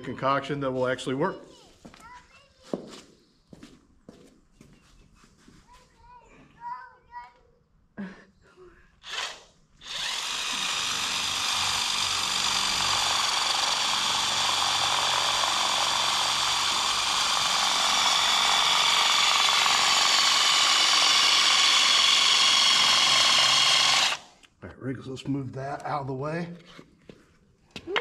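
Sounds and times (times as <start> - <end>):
cordless drill boring into concrete: 9.0 - 24.4.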